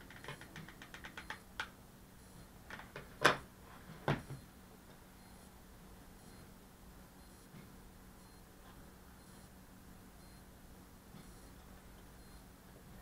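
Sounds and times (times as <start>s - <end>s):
scattered clicks: 0.0s - 1.7s.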